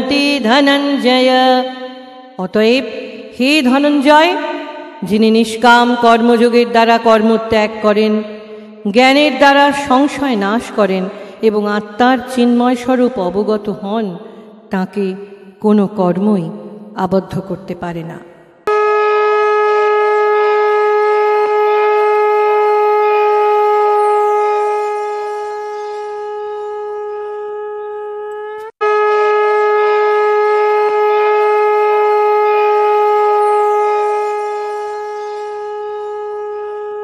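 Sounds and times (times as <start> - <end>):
conch shell blasts: 18.6 - 37.0.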